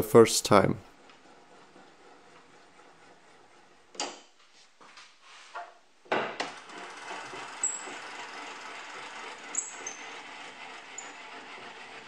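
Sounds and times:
crank scraping and rubbing: 0.8 - 5.6, 6.4 - 12.0.

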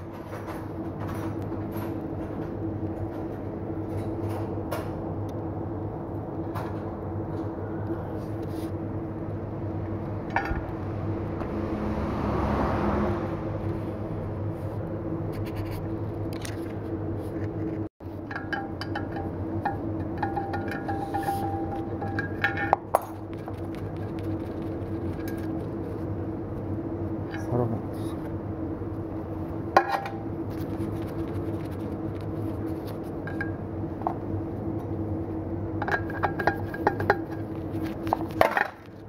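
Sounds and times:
wheel balancer humming: 0.0 - 39.0.

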